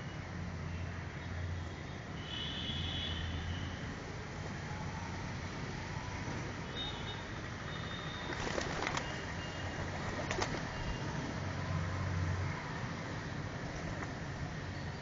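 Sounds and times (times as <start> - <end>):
pigeons feeding: 8.2 - 9.4
pigeon wing claps: 8.3 - 9.2, 10.2 - 10.8.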